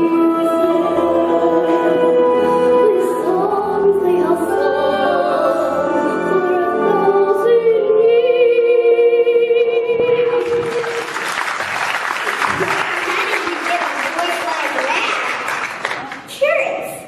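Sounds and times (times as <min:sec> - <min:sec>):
person singing: 0:00.0 - 0:11.1
audience applause: 0:10.2 - 0:16.3.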